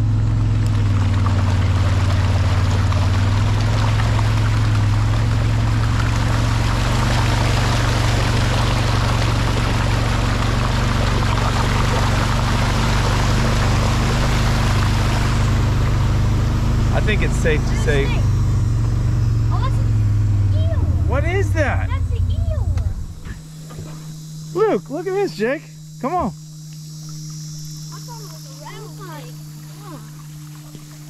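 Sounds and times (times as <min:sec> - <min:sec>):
water rushing across road: 0:00.0 - 0:19.8
vehicle engine hum: 0:00.0 - 0:31.0.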